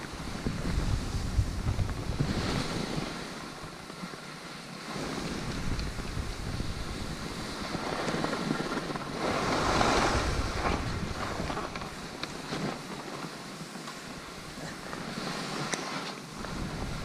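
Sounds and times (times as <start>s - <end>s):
wind buffeting microphone: 0.0s - 3.9s, 5.1s - 13.1s, 16.3s - 17.0s
skis hissing over snow: 0.0s - 17.0s.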